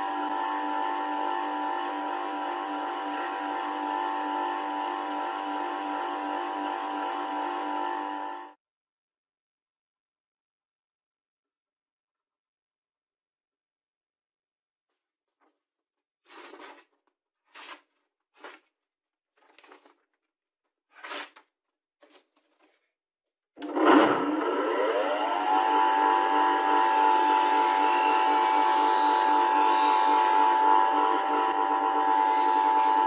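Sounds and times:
bench grinder motor hum: 0.0s - 8.6s, 23.6s - 33.0s.

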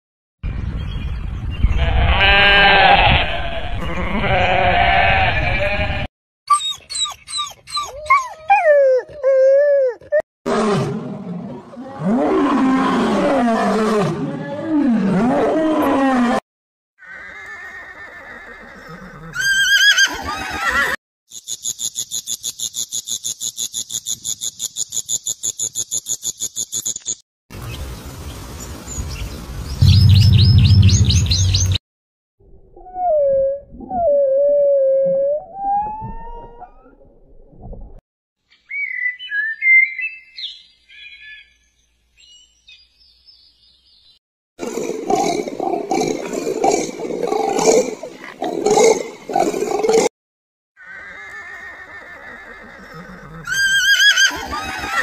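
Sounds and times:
sheep and lambs bleating: 1.7s - 6.1s
lion roaring and grunting: 10.5s - 16.4s, 44.6s - 50.1s
gliding animal calls: 50.8s - 55.0s.

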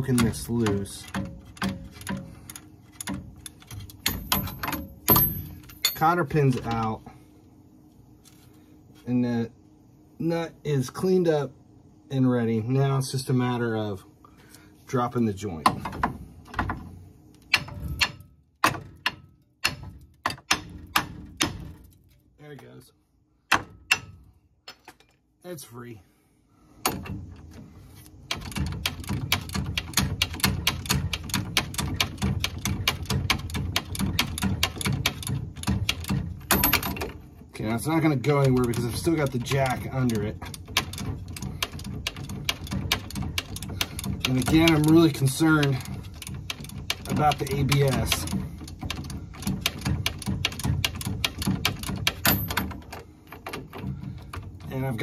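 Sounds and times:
ratchet clicking: 38.3s - 54.6s.

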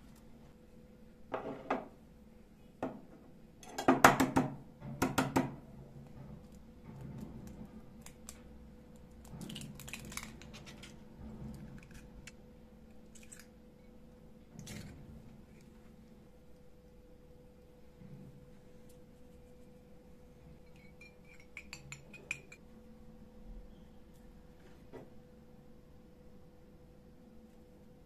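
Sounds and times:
egg cracking: 7.2s - 13.6s.

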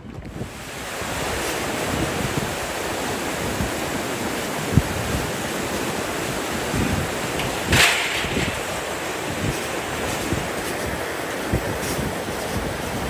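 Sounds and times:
wind buffeting microphone: 0.0s - 13.0s
river rapids rushing: 0.3s - 13.0s.

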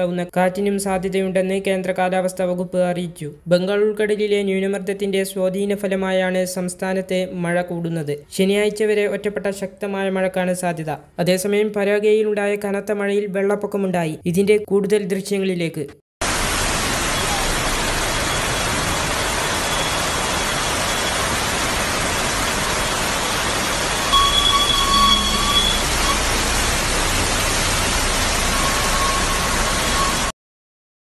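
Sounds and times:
heavy rain and rushing floodwater: 16.2s - 30.3s
brief higher tone: 24.0s - 26.3s.

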